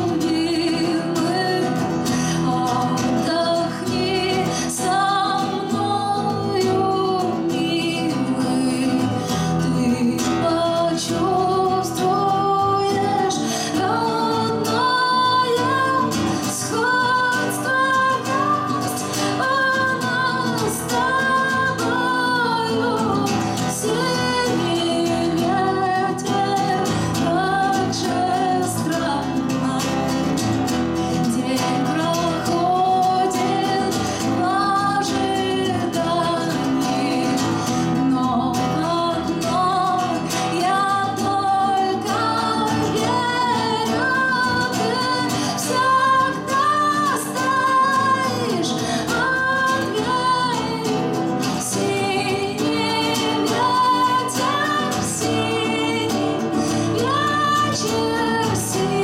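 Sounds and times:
acoustic guitar plucking: 0.0 - 59.0
woman singing a slow song: 0.0 - 59.0.

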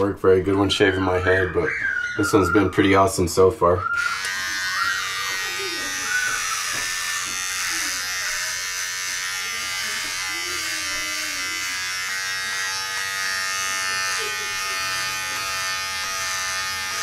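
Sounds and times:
hair trimmer buzzing: 4.0 - 17.0.

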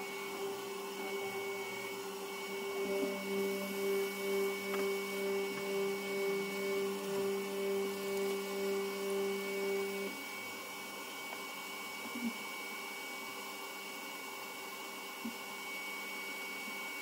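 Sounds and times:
small electric motor humming: 0.0 - 10.4.

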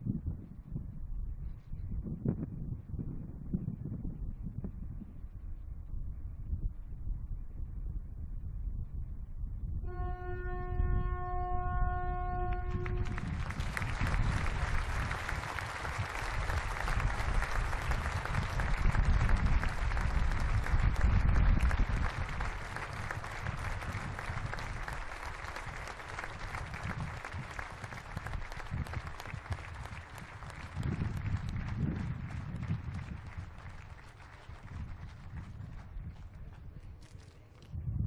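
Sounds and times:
large crowd applauding: 12.4 - 37.2.

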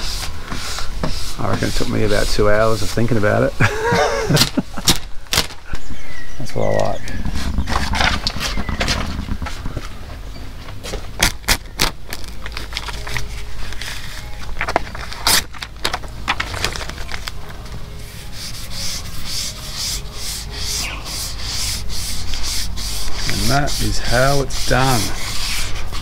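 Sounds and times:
squeegee scraping a boat hull: 0.0 - 3.4, 18.0 - 26.0.

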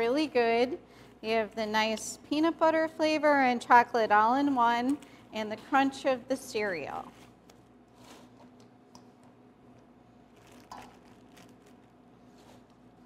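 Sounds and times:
plastic bag rustling and clicks: 10.3 - 12.0.

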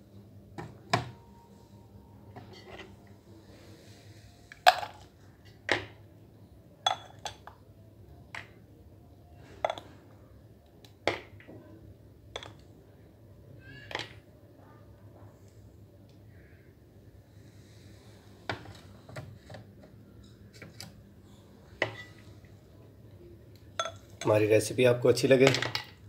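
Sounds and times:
spoon clinking against glass: 23.8 - 24.3.

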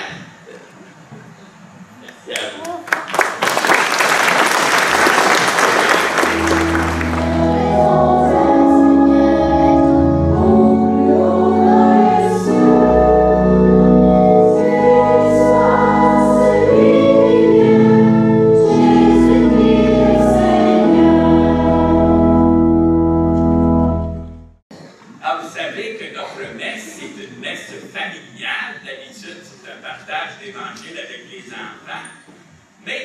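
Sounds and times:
congregation singing a hymn: 5.8 - 24.1
instrumental accompaniment with low notes: 6.2 - 24.6
woman cantor singing: 6.3 - 22.4.

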